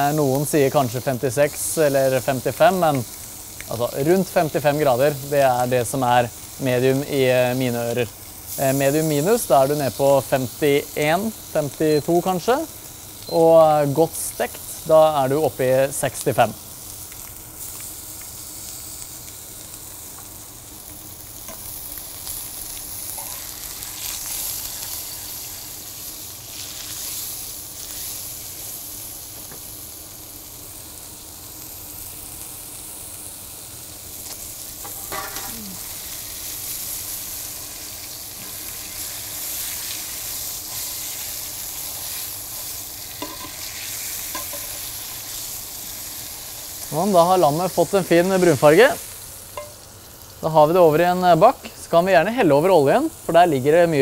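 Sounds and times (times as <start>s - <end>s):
meat sizzling in frying pans: 0.0s - 54.0s
metal tongs clicking on pans: 34.8s - 35.6s, 43.2s - 43.6s, 44.3s - 44.8s.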